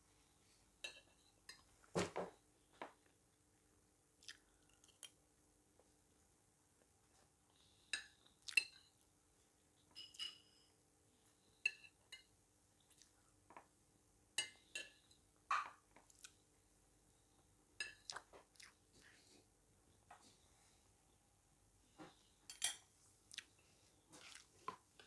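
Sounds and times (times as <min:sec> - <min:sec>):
soft chewing: 0:04.1 - 0:13.8, 0:14.4 - 0:16.5, 0:17.2 - 0:21.1, 0:21.8 - 0:25.0
metal spoon clinking on a plate: 0:10.0 - 0:10.7, 0:22.5 - 0:22.8.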